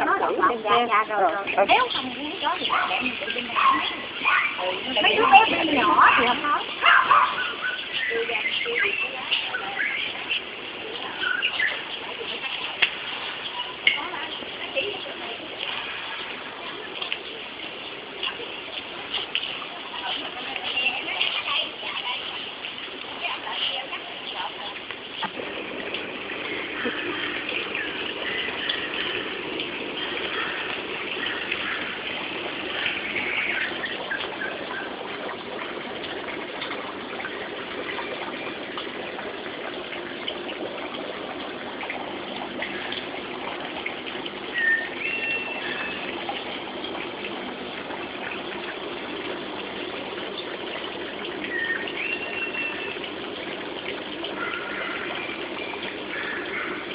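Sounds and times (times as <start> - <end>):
water gushing into pond: 0.0 - 56.9
bird calls: 6.8 - 10.4, 11.1 - 12.0, 26.6 - 29.3, 30.0 - 35.0, 44.5 - 46.1, 51.4 - 53.1, 54.4 - 56.9.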